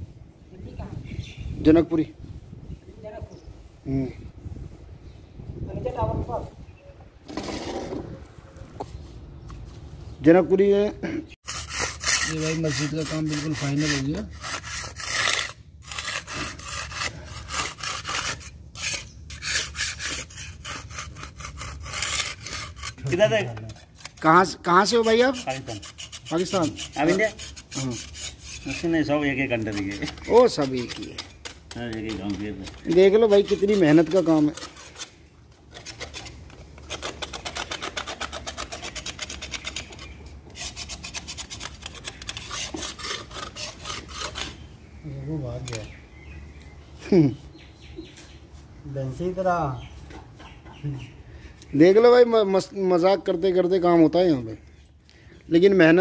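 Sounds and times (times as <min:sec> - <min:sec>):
metal scraper scraping a wall: 0:07.3 - 0:08.1, 0:11.4 - 0:44.6.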